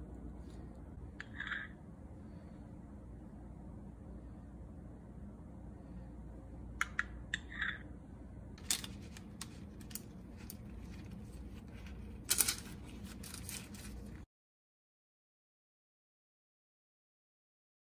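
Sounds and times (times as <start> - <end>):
paper crinkling and rustling: 8.6 - 14.2.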